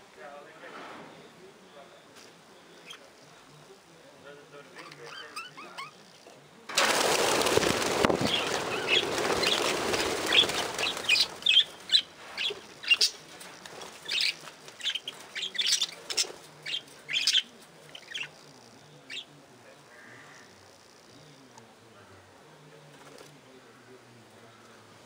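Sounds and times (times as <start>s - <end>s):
flurry of wingbeats: 6.7s - 18.6s, 22.8s - 23.4s.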